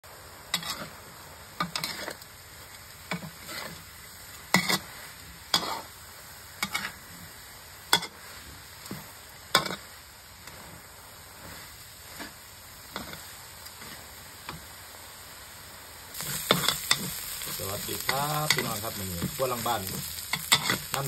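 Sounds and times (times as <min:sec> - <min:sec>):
meat sizzling: 0:00.1 - 0:21.0
metal spatula scraping wok: 0:00.5 - 0:01.0, 0:01.6 - 0:02.2, 0:03.1 - 0:03.9, 0:04.5 - 0:05.9, 0:06.6 - 0:07.0, 0:13.8 - 0:14.1, 0:16.2 - 0:21.0.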